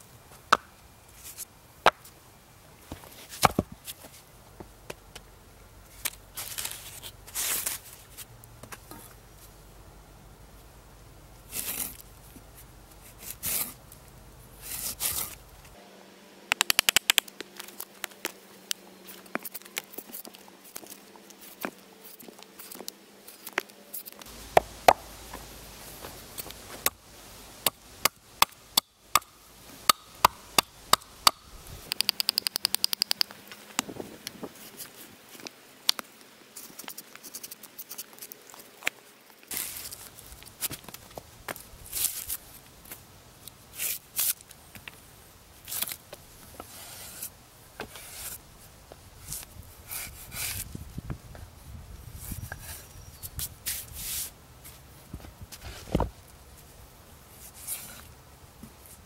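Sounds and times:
drawknife scraping log: 11.5s - 12.0s, 13.0s - 13.8s, 14.6s - 15.4s, 46.6s - 48.4s.

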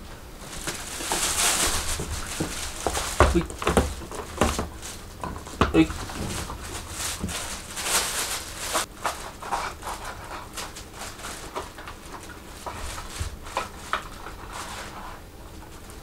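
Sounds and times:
cat shifting in carrier: 0.6s - 9.2s.

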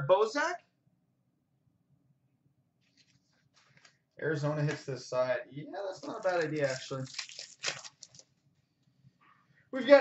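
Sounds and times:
trading cards rustling: 5.9s - 8.3s.

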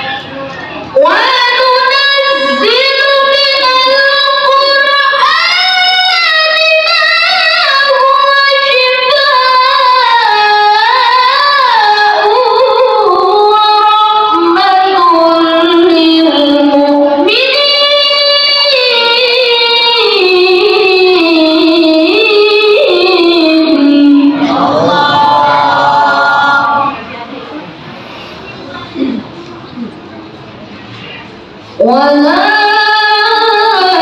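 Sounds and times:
boy chanting into microphone: 0.0s - 27.1s.

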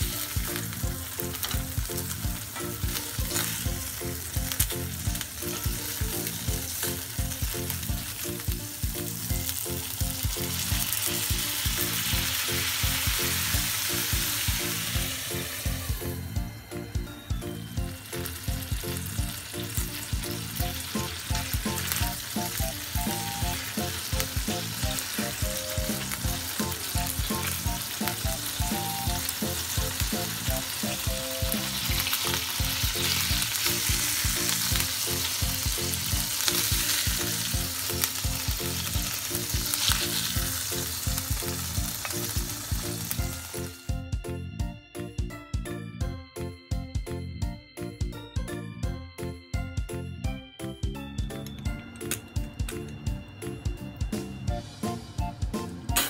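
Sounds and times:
patties sizzling in a pan: 0.0s - 43.8s.

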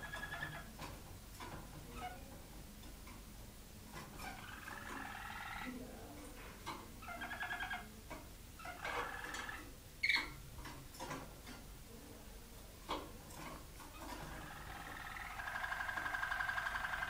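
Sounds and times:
canaries singing: 0.0s - 0.9s, 4.0s - 6.0s, 6.6s - 10.4s, 13.8s - 17.0s
ticks and taps in cage: 0.0s - 3.3s, 6.4s - 11.7s, 12.8s - 17.0s.

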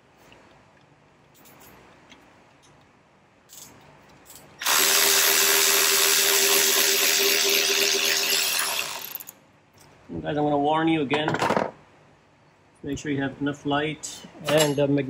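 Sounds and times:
cordless power driver whirring: 4.6s - 9.3s.

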